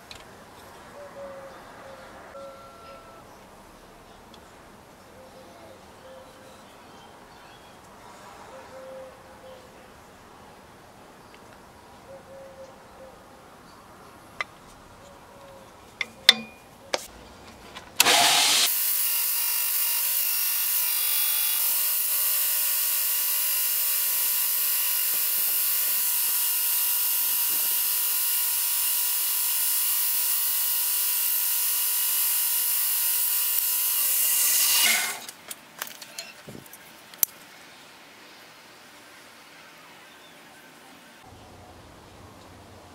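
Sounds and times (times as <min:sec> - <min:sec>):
belt grinder sanding wood: 0:18.0 - 0:35.3.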